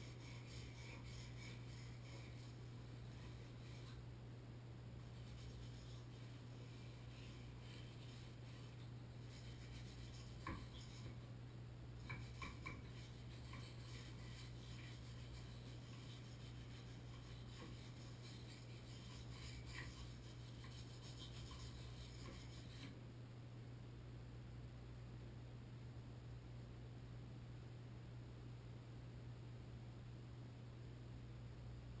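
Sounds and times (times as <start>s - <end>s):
hand tool scraping inside valve: 0.0s - 4.0s, 5.0s - 11.2s, 12.0s - 22.9s.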